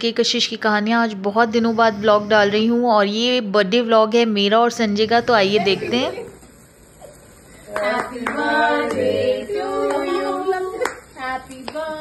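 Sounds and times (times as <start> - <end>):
people singing a birthday tune: 7.6 - 12.0
hand claps: 7.7 - 9.1, 10.8 - 11.8.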